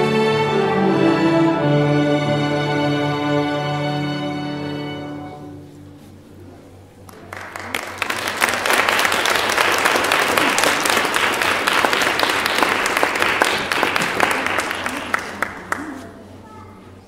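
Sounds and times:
violin ensemble note: 0.0s - 6.2s
audience applause: 7.0s - 16.0s.

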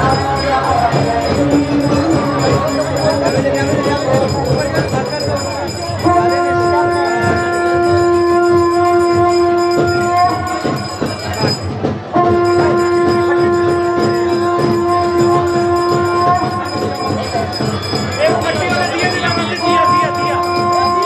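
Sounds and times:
voices: 0.0s - 21.0s
conch shell blasts: 6.0s - 18.2s, 18.8s - 21.0s.

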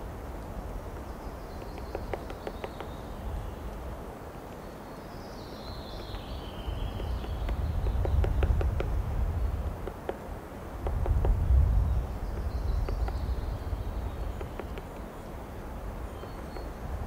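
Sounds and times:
low wind rumble: 0.0s - 17.0s
woodpecker tapping on bark: 1.0s - 3.1s, 6.0s - 11.6s, 12.3s - 15.2s, 16.2s - 16.8s.

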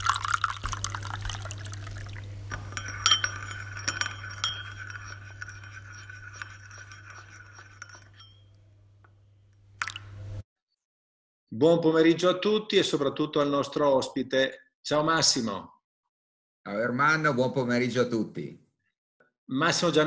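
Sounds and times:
liquid pouring: 0.0s - 8.1s, 9.8s - 10.2s
cup and spoon clinking: 2.5s - 8.6s.

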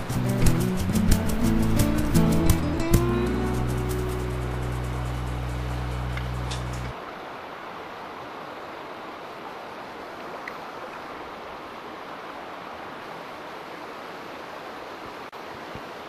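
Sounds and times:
song music: 0.0s - 6.9s
creek running over rocks: 0.0s - 16.0s.

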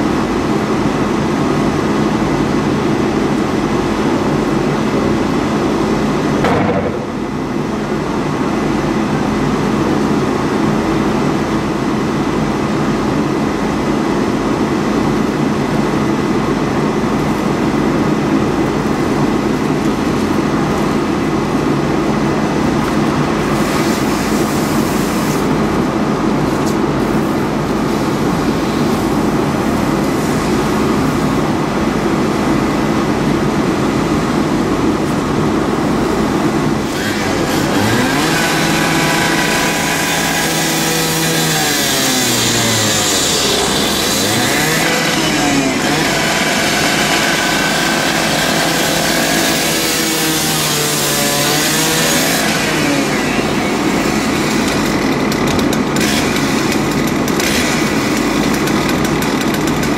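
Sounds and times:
engine and traffic rumble: 51.0s - 59.9s.

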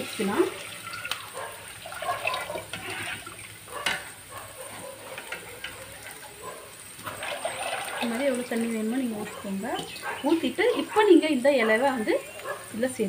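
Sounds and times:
water pouring into pot: 0.0s - 4.3s, 5.2s - 10.0s
ladle stirring liquid: 0.0s - 10.0s.

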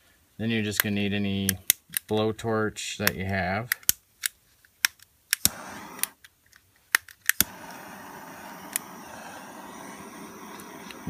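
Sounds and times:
torch ignition clicks: 4.8s - 6.3s, 6.9s - 11.0s
torch flame hissing: 5.4s - 6.2s, 7.4s - 11.0s.

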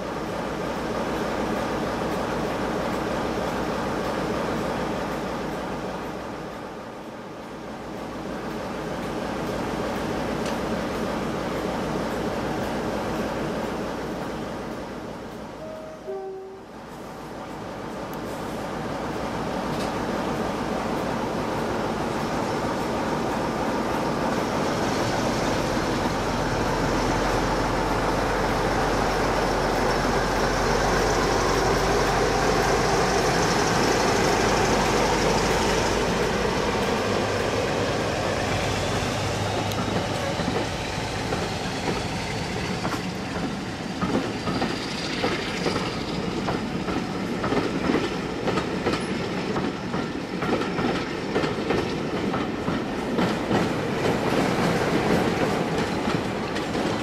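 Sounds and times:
diesel locomotive engine running: 20.2s - 49.1s
train wheels clattering over rail joints: 39.5s - 57.0s.

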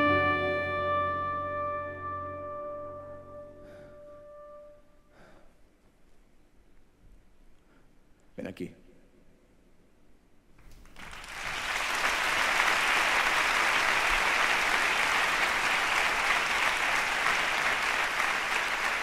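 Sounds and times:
audience applause: 10.8s - 19.0s.

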